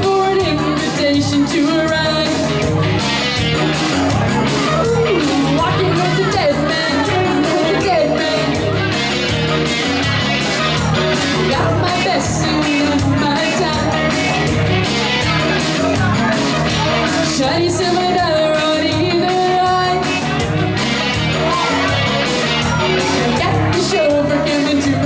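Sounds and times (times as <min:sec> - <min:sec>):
backing track with steady beat: 0:00.0 - 0:25.0
person singing: 0:00.0 - 0:25.0.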